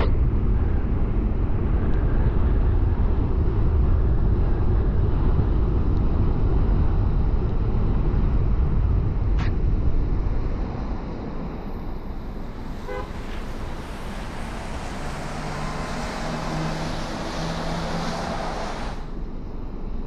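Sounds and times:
tyres on wet road: 12.4 - 19.2
car horn toot: 12.8 - 13.4.

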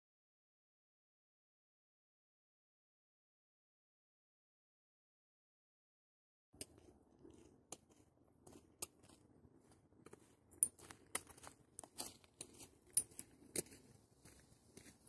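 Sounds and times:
footsteps crunching: 6.7 - 15.0.

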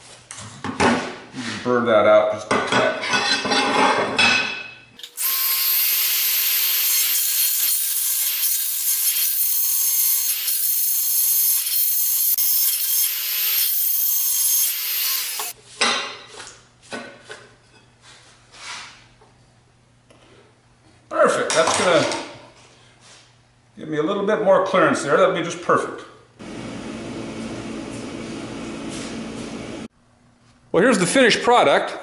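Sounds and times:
rotary tool grinding metal: 5.0 - 15.6.

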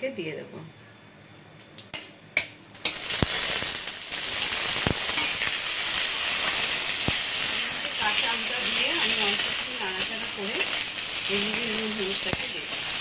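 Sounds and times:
pieces knocking in pan: 2.0 - 13.0
mango slices sizzling in oil: 2.7 - 13.0
mustard seeds spluttering: 2.9 - 13.0.

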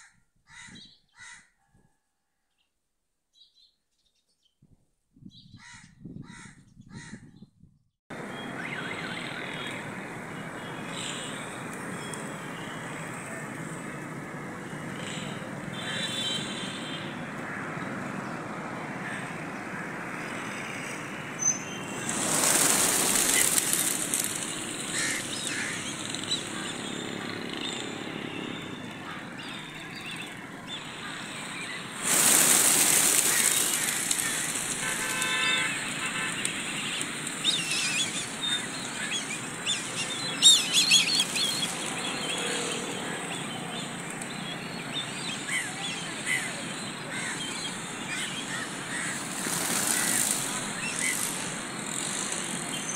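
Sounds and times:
road traffic: 8.1 - 52.9
pigeons flapping wings taking off: 21.9 - 26.4, 32.0 - 37.4, 48.5 - 52.5.

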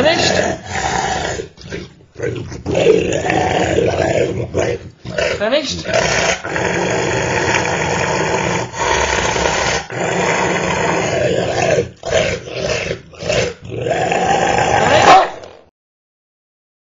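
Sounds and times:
dog growling: 0.0 - 15.5.

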